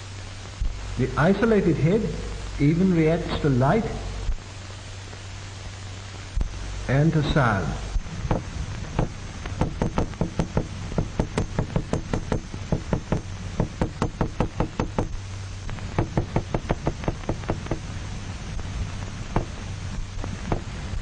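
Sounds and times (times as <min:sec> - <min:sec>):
small hammer knocking on a tabletop: 0:08.3 - 0:15.1.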